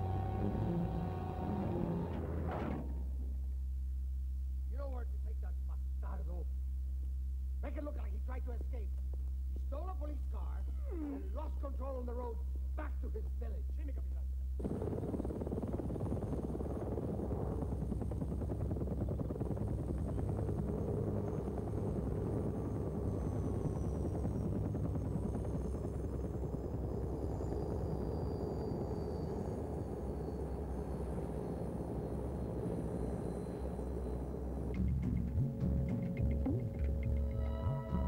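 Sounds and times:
helicopter rotor and engine: 0.0 - 3.0, 14.6 - 38.0
high turbine whine: 14.6 - 38.0.

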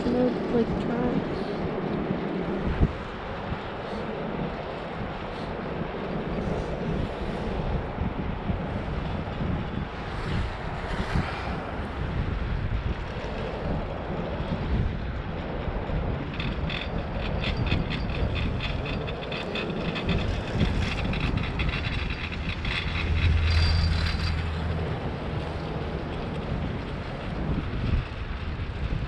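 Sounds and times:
steady rumble: 0.0 - 29.0
wind buffeting microphone: 0.0 - 29.0
rapid clicking rattle: 15.4 - 27.5.

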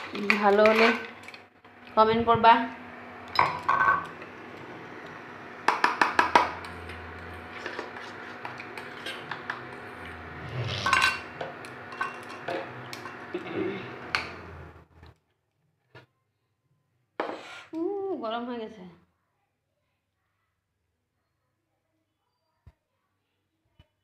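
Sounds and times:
utensils and dishes clinking: 0.0 - 1.5, 3.3 - 4.3, 5.7 - 14.6.

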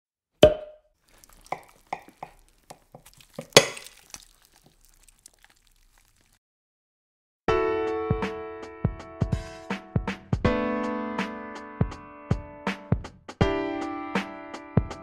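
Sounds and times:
fork clinking on ceramic bowl: 1.3 - 4.2.

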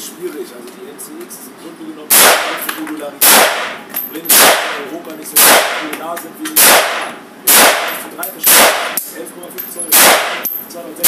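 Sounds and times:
rifle shots in indoor range: 3.2 - 4.8, 6.6 - 9.0, 9.9 - 10.6.

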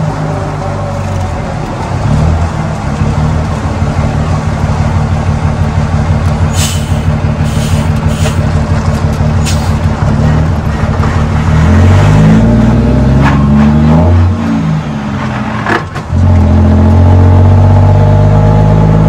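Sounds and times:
diesel truck engine: 0.0 - 19.0
short hisses: 6.5 - 8.4.

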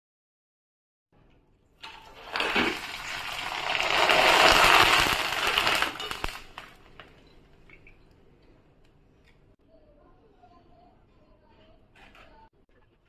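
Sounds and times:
food sizzling in hot oil: 1.9 - 7.0.

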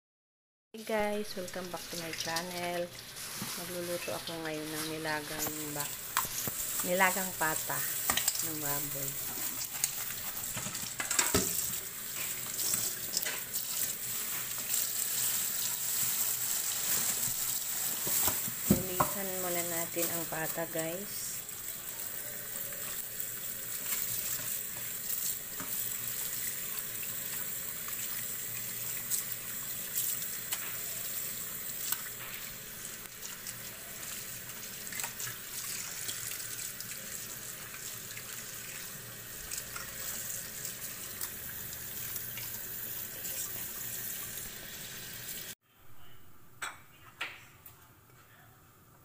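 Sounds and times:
tap water running into sink: 7.9 - 14.8.

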